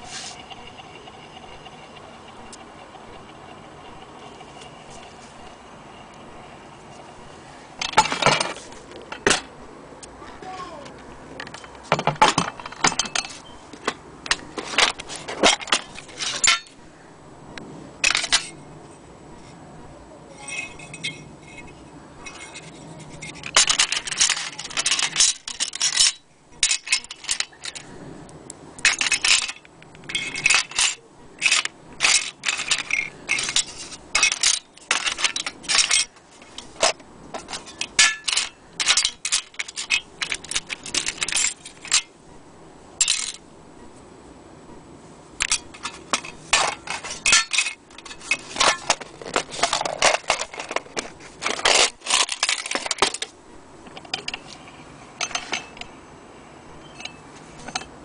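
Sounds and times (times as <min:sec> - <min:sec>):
metal scraping: 0:00.0 - 0:05.6, 0:11.4 - 0:16.8, 0:20.4 - 0:27.9, 0:28.8 - 0:42.1, 0:45.4 - 0:55.9
metal parts clinking in a tray: 0:11.4 - 0:16.8, 0:18.0 - 0:18.6, 0:20.4 - 0:27.9, 0:28.8 - 0:42.1, 0:43.0 - 0:43.4, 0:45.4 - 0:53.3, 0:53.9 - 0:54.6, 0:55.2 - 0:55.9, 0:56.8 - 0:58.0.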